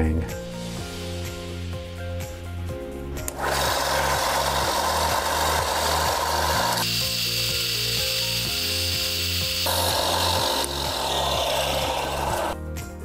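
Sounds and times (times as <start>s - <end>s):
background music bass line: 0.0s - 13.0s
belt sander grinding: 3.3s - 6.9s, 9.6s - 12.6s.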